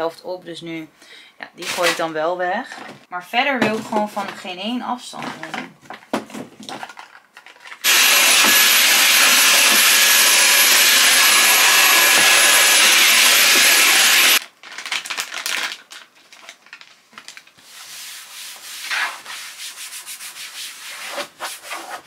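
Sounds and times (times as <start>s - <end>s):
plastic bottles being handled: 2.6s - 7.8s
loud steady hiss with high whine: 7.8s - 14.4s.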